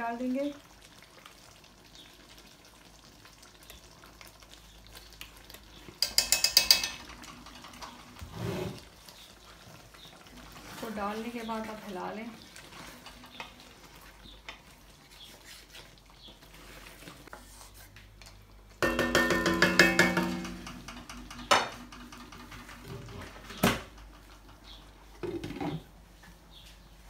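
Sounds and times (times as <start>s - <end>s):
spatula tapping ringing pan: 6.0s - 7.0s, 18.8s - 21.0s
spatula scraping metal wok: 8.2s - 8.9s
knocks on pan: 18.8s - 22.3s.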